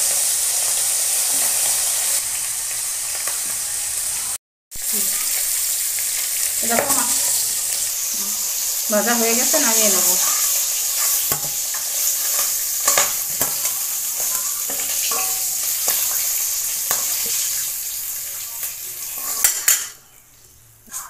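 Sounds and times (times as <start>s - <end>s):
fish sizzling in hot oil: 0.0s - 19.9s
spoon scraping a metal pan: 9.4s - 17.8s, 19.0s - 20.0s.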